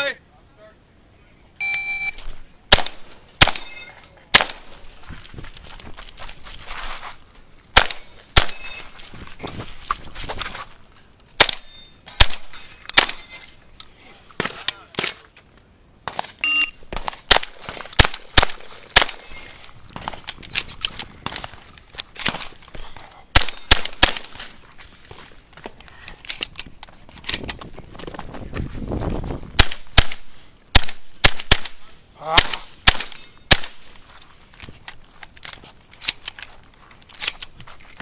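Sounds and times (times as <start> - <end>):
shotgun shots: 2.7 - 4.8, 7.7 - 8.9, 11.4 - 13.3, 16.1 - 19.5, 23.3 - 24.4, 29.6 - 33.9.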